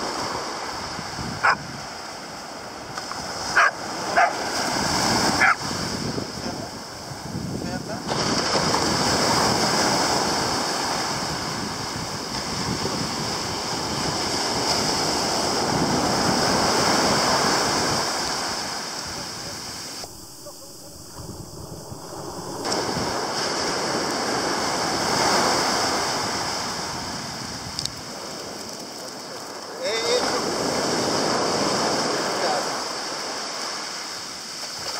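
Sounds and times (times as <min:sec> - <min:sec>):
wind buffeting microphone: 0:00.0 - 0:29.0
surf breaking on beach: 0:00.0 - 0:34.9.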